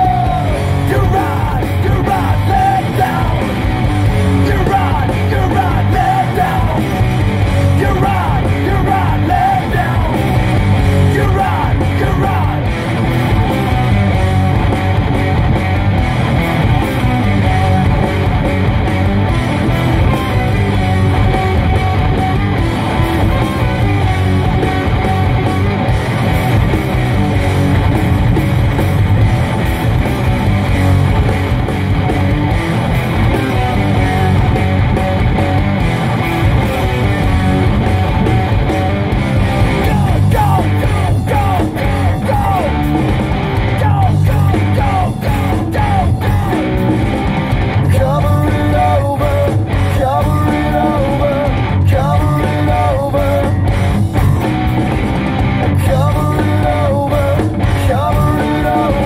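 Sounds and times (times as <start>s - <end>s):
sung and yelled vocals: 0.0s - 14.2s, 33.2s - 35.1s, 39.7s - 54.7s, 55.6s - 59.0s
rock song with electric guitar: 0.0s - 59.0s.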